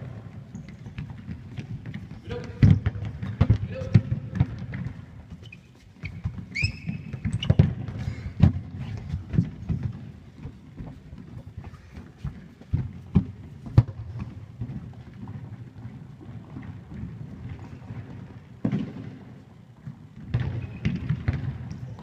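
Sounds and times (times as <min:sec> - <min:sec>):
football thuds and bounces: 0:00.0 - 0:05.4, 0:06.0 - 0:11.3, 0:12.2 - 0:15.6, 0:16.5 - 0:19.3, 0:20.2 - 0:21.8
players' footsteps: 0:00.0 - 0:22.0
short high squeaks: 0:05.4 - 0:07.6.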